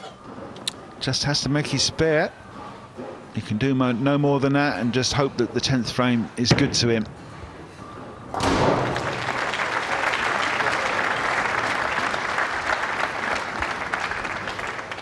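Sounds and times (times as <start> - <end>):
bowling ball striking pin: 8.3 - 9.4
crowd applause: 8.8 - 15.0.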